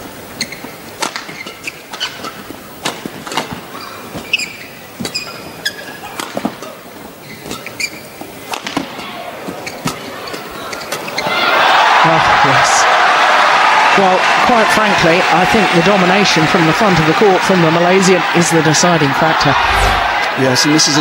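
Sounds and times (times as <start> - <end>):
shoes squeaking on court: 4.0 - 5.9, 7.2 - 8.3.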